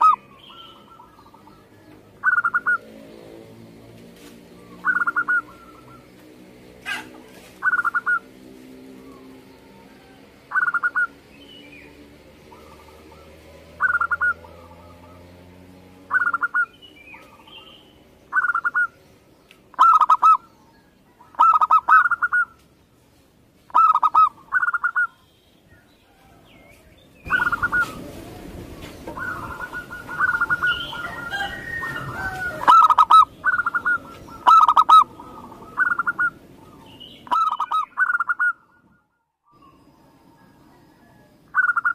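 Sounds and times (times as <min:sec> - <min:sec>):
dove cooing: 0:00.0 - 0:03.0, 0:04.5 - 0:06.1, 0:06.8 - 0:08.4, 0:09.0 - 0:11.3, 0:12.4 - 0:15.4, 0:16.1 - 0:17.7, 0:18.3 - 0:19.0, 0:19.7 - 0:20.5, 0:21.1 - 0:22.6, 0:23.7 - 0:25.2, 0:27.3 - 0:38.8.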